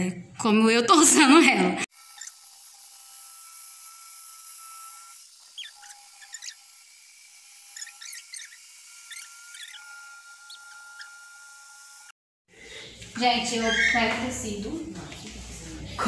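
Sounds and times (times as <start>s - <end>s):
short high squeaks: 5.5s - 6.6s, 7.7s - 11.4s, 13.6s - 14.1s.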